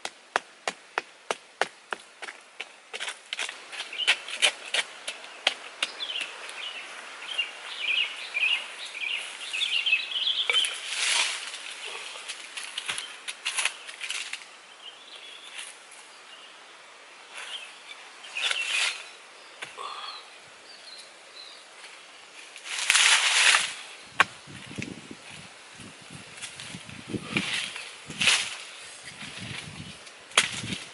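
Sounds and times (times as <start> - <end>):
dry leaves rustling: 3.0 - 14.5, 21.8 - 30.9
birds chirping: 3.6 - 14.0, 14.6 - 22.4
stick scraping into dry earth: 10.4 - 14.5, 18.3 - 19.2, 22.6 - 25.5, 26.3 - 30.9
rocks being shifted: 10.5 - 14.4.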